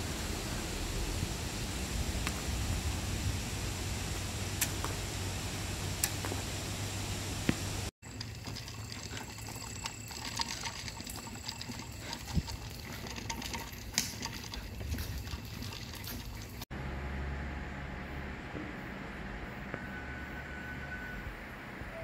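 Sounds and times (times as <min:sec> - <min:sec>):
electric fan hum: 0:00.0 - 0:07.9, 0:16.7 - 0:21.9
running water trickling: 0:02.0 - 0:16.7.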